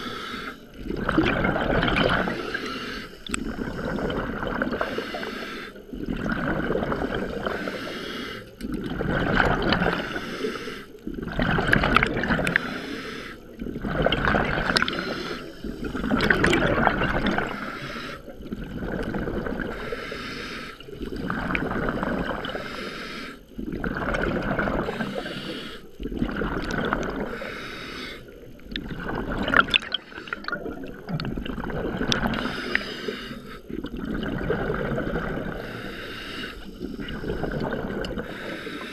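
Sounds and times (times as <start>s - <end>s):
diver breathing through regulator: 0.0s - 5.9s, 6.8s - 8.6s, 9.7s - 11.0s, 12.4s - 13.6s, 14.6s - 18.4s, 19.5s - 23.5s, 24.6s - 26.0s, 27.0s - 28.5s, 32.2s - 33.9s, 35.0s - 38.9s
exhaled bubbles gurgling: 0.0s - 38.9s.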